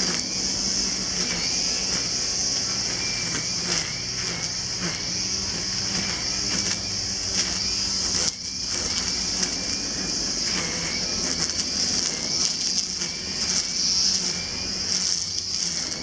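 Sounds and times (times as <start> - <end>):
brushcutter engine cutting grass: 0.0 - 16.0
high-pitched hiss: 0.0 - 16.0.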